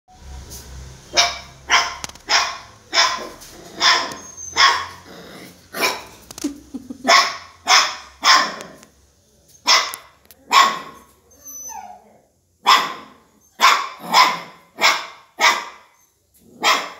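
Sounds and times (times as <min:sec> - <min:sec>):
dog barking: 0:01.1 - 0:05.0, 0:05.8 - 0:06.2, 0:07.1 - 0:08.8, 0:09.6 - 0:11.1, 0:12.6 - 0:16.9.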